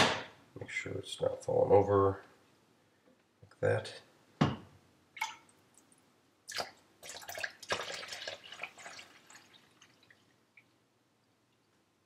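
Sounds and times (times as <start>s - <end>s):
liquid splashing and trickling: 5.2s - 10.8s.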